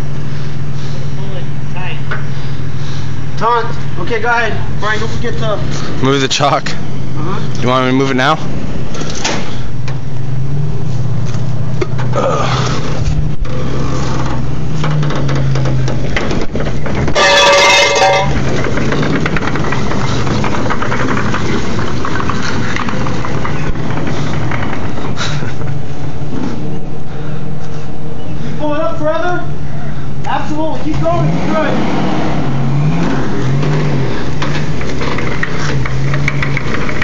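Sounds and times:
vehicle engine running: 0.0s - 37.0s
loud pitched tone: 17.2s - 18.4s.

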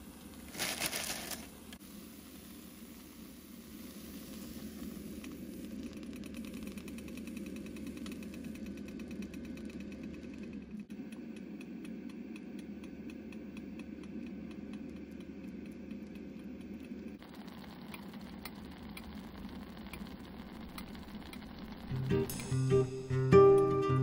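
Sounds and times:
batter sizzling on a hot plate: 17.2s - 23.0s
guitar music: 21.9s - 24.0s.

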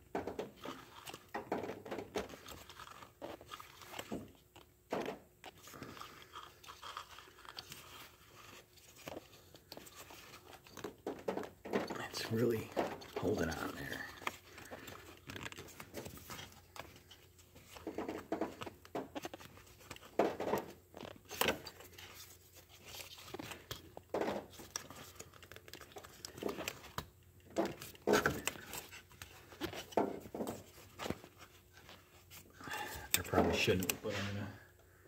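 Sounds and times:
plastic ignition coil clicking and creaking: 0.0s - 32.1s, 33.0s - 34.1s.

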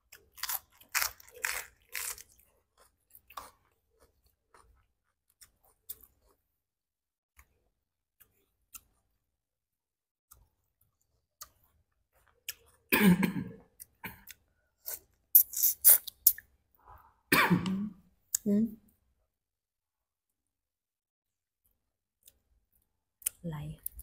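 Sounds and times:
throaty cough-like sound: 12.9s - 14.3s, 17.3s - 18.0s.

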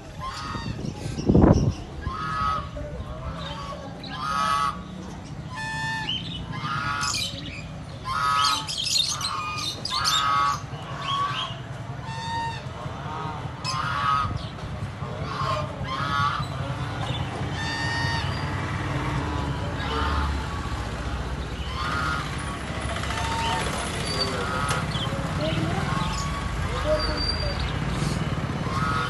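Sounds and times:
geese honking: 0.1s - 1.0s, 2.0s - 18.8s, 19.4s - 20.6s, 21.6s - 27.2s, 28.0s - 29.0s.

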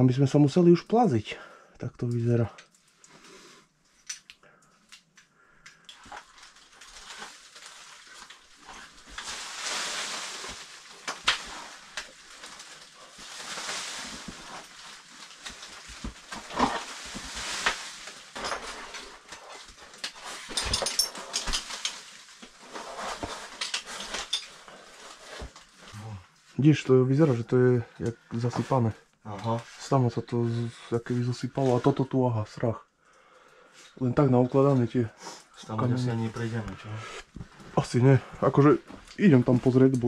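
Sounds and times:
clothing and gear scraping on rock: 6.0s - 26.2s, 28.3s - 32.0s
heavy breathing: 33.0s - 34.0s.

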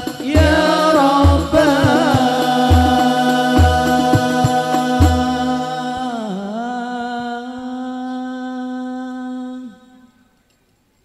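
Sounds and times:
drum stroke: 0.0s - 6.1s
people singing held note: 0.0s - 10.3s.

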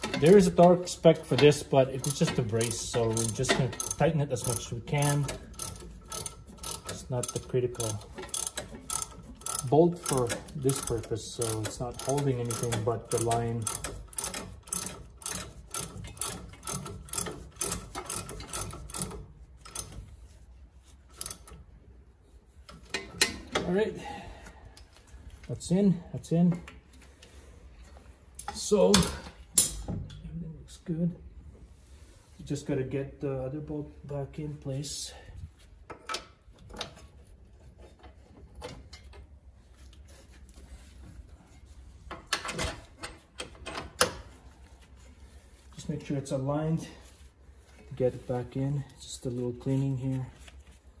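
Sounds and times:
metal tools clinking and knocking: 0.0s - 20.0s
ratchet wrench clicking: 0.0s - 20.0s, 21.1s - 21.6s.

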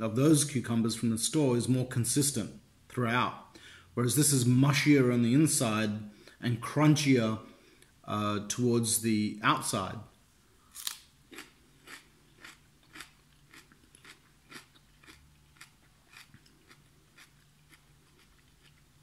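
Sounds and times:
cucumber chewing crunches: 10.7s - 19.0s.

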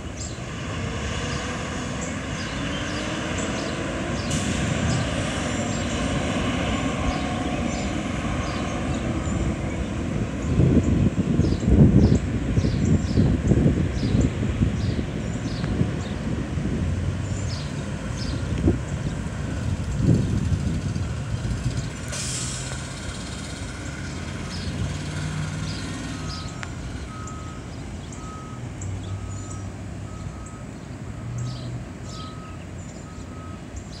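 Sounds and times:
diesel bus engines running: 0.0s - 34.0s
air brake hiss: 22.1s - 22.8s
reversing alarm beeping: 26.0s - 33.7s.

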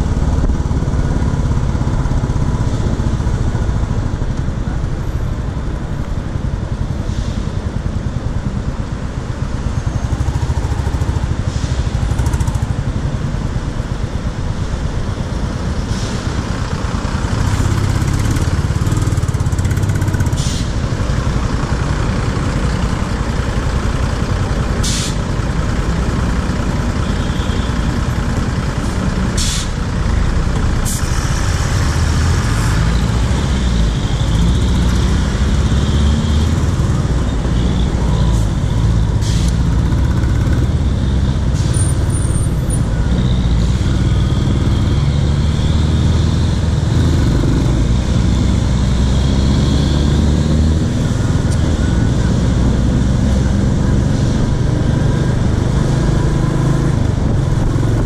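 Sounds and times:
buses running: 0.0s - 58.0s
air brake hisses: 7.0s - 7.5s, 20.3s - 20.8s, 24.8s - 25.2s, 29.4s - 29.8s, 39.2s - 39.6s.

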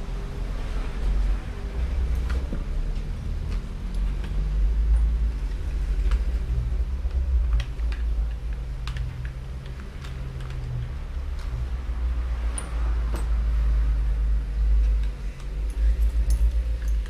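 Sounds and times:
steady low rumble: 0.0s - 17.0s
small plastic parts clicking: 7.0s - 11.6s.

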